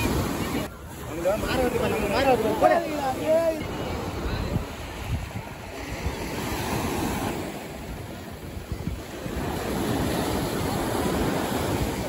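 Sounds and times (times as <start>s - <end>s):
surf washing onto beach: 0.0s - 12.0s
wind rumbling on microphone: 3.3s - 12.0s.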